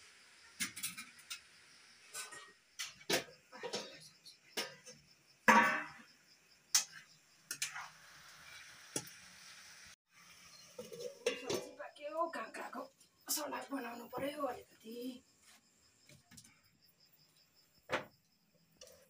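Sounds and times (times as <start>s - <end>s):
pots set down on stove: 0.6s - 1.5s, 2.1s - 4.0s, 4.6s - 6.1s, 10.7s - 11.8s, 17.9s - 18.2s.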